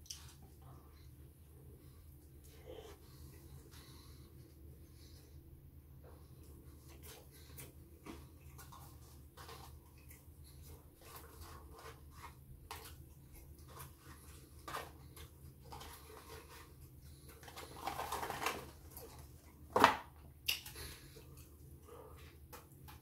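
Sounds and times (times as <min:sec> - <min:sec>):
chewing with mouth clicks: 0:06.4 - 0:18.1, 0:20.4 - 0:23.0.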